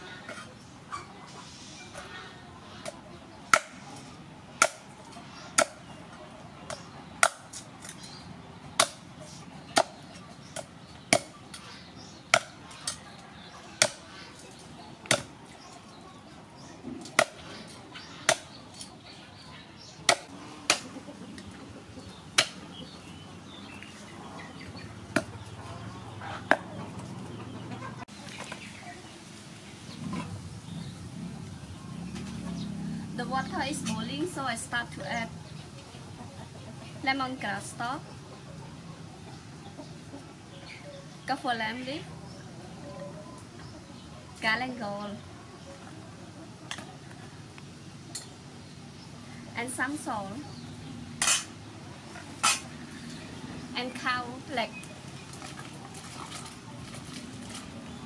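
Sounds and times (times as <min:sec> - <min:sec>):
cleaver chopping bone on wooden block: 0:20.1 - 0:20.8.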